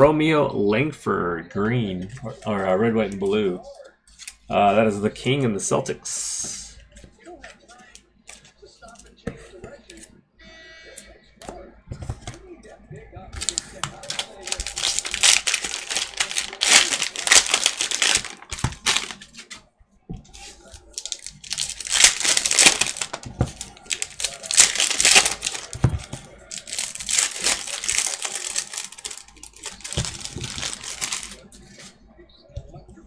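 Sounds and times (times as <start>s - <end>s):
plastic wrappers crinkling: 13.4s - 19.6s, 20.3s - 31.9s.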